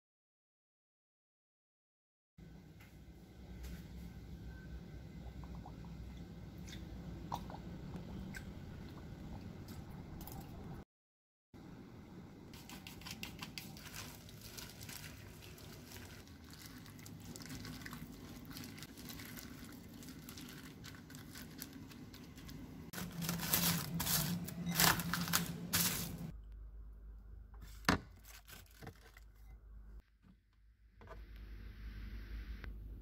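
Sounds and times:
plastic wrap crinkling and tearing: 0:12.6 - 0:26.3, 0:28.1 - 0:29.4
wet squishing of raw meat: 0:13.7 - 0:21.7.

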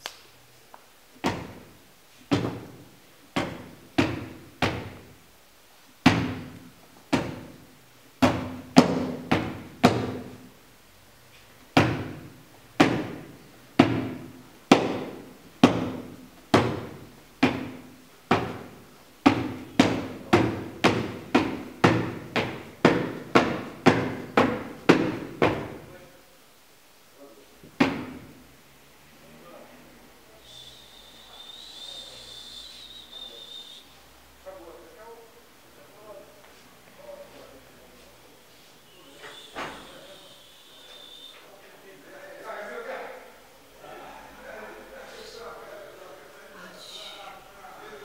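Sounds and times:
ball bouncing: 0:01.2 - 0:02.8, 0:03.4 - 0:05.1, 0:06.0 - 0:07.6, 0:08.2 - 0:10.4, 0:11.8 - 0:25.8.

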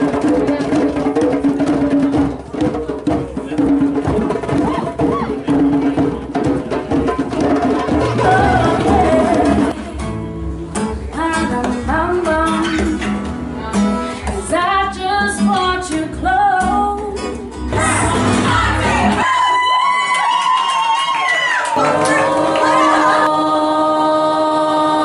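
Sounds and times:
drum beat: 0:00.0 - 0:09.8
acoustic guitar: 0:00.0 - 0:19.2
person singing: 0:07.9 - 0:09.9, 0:21.8 - 0:25.0.

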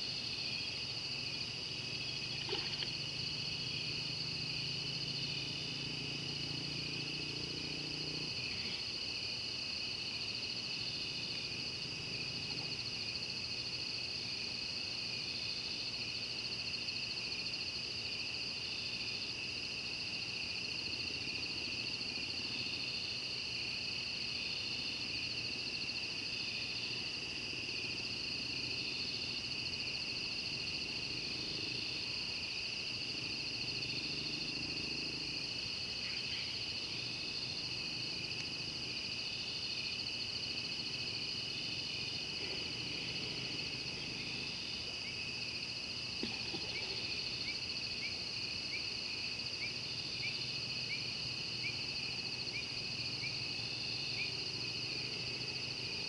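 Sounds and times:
insects trilling: 0:00.0 - 0:56.0
insect calling in short pulses: 0:02.1 - 0:03.7.

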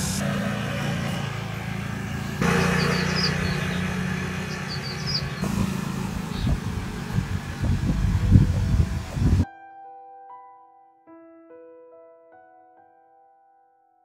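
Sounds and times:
scooter engine humming: 0:00.0 - 0:09.4.

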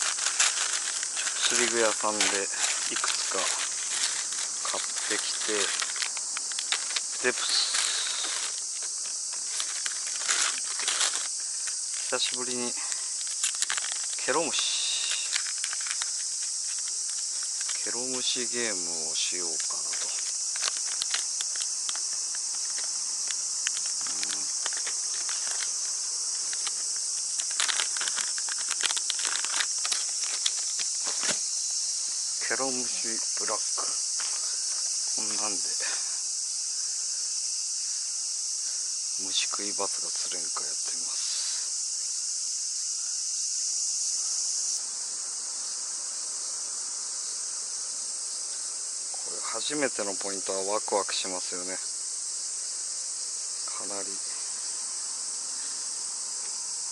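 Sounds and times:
plastic package crackling: 0:00.0 - 0:18.6, 0:19.2 - 0:31.4
cicadas chorus: 0:00.0 - 0:56.9.

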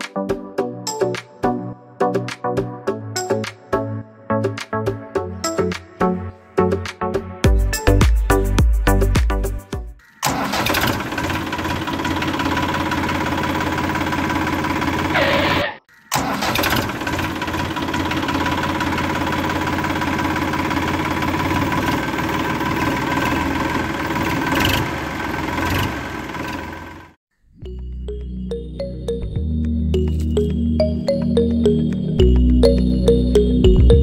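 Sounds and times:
engine running steadily: 0:10.3 - 0:27.2.

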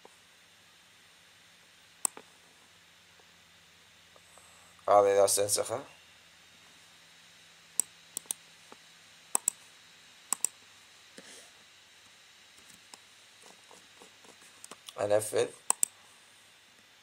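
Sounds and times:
mouse and keyboard clicks: 0:09.4 - 0:09.6, 0:10.3 - 0:10.5, 0:15.7 - 0:15.9.

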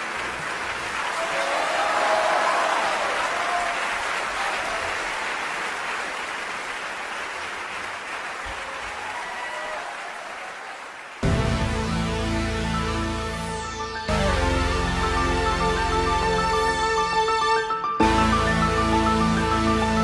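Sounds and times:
audience applause: 0:00.0 - 0:11.6
electronic synthesizer music: 0:11.2 - 0:20.0.

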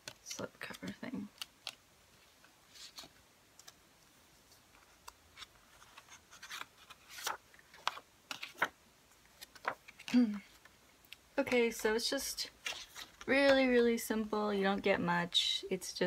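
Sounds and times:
paper rustling: 0:00.0 - 0:03.8, 0:04.4 - 0:10.7, 0:11.6 - 0:13.8.

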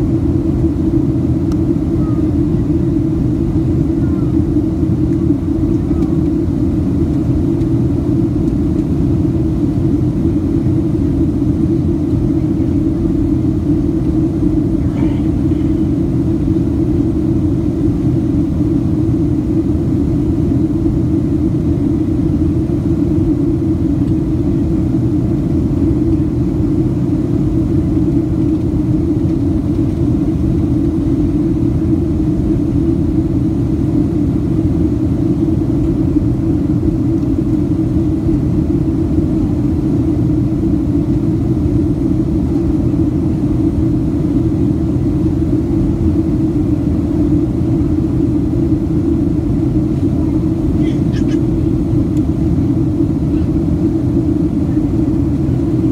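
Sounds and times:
airliner cabin roar: 0:00.0 - 0:55.9.

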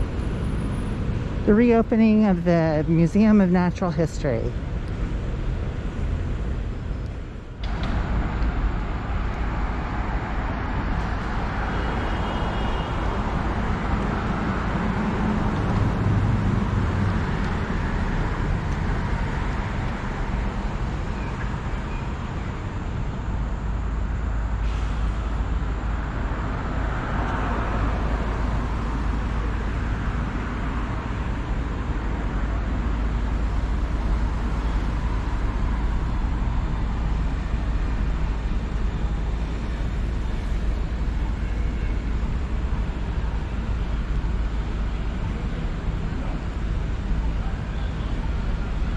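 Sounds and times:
cars passing on street: 0:00.0 - 0:48.9.

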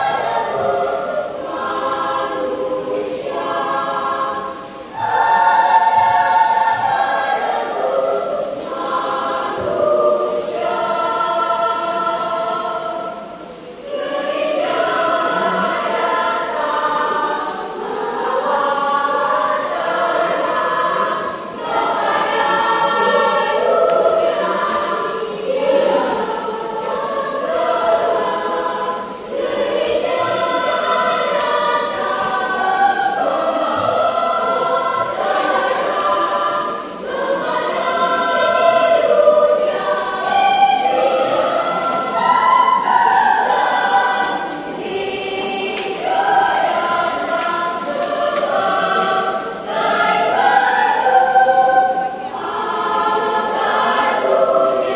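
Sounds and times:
children's choir singing: 0:00.0 - 0:54.9.

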